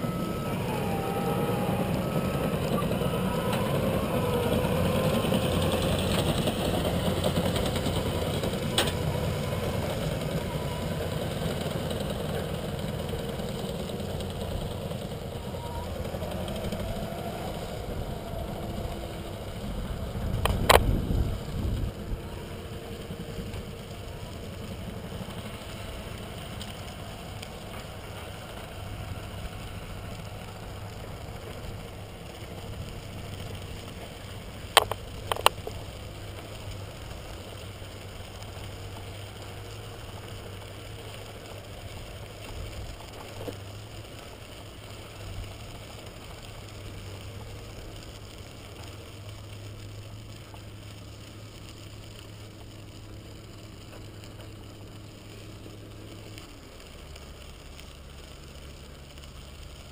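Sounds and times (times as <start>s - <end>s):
bicycle tyres on gravel: 0.0s - 59.9s
low hum: 0.0s - 59.9s
wind noise: 15.2s - 23.8s.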